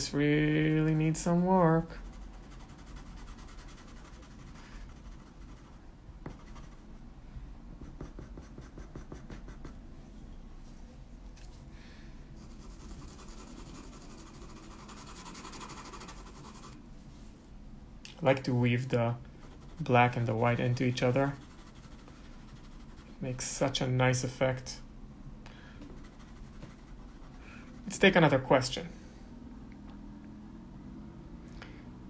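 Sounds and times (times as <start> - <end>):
pastel pencils scratching on paper: 0.7 - 7.0, 7.8 - 9.8, 12.4 - 16.8, 19.4 - 23.5, 25.9 - 28.2.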